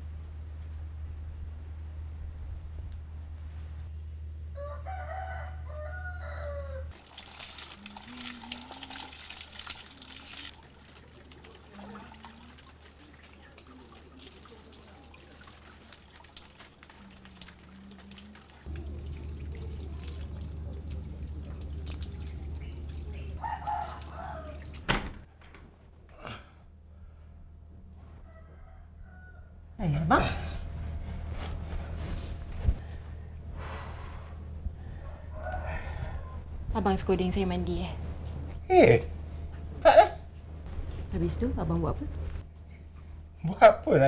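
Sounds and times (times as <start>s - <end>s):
water pouring and splashing: 6.9s - 24.8s.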